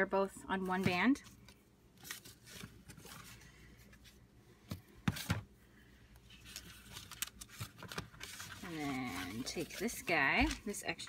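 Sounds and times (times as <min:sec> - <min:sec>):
paper notebooks rustling: 0:06.3 - 0:11.0.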